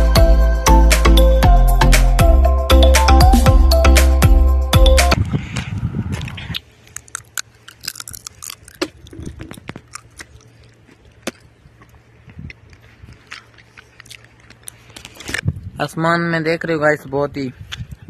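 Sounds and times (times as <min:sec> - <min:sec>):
background music: 0:00.0 - 0:05.2
faint crunching and clicking: 0:06.2 - 0:15.4.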